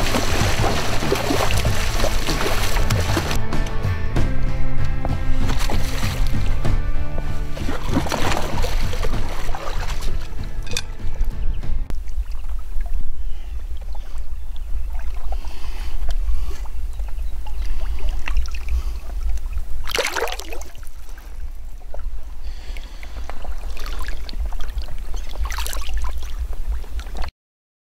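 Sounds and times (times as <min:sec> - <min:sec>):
small waves lapping: 0:00.0 - 0:03.4, 0:05.2 - 0:27.3
wind rumbling on microphone: 0:04.8 - 0:20.0, 0:20.6 - 0:27.3.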